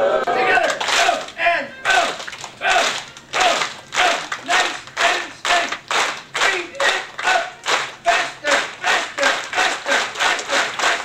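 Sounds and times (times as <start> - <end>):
audience clapping in rhythm: 0.4 - 11.0.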